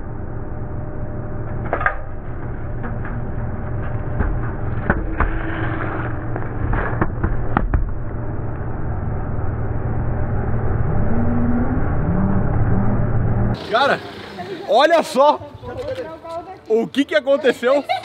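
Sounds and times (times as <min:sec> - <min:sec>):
road roller engine running: 0:00.0 - 0:16.7.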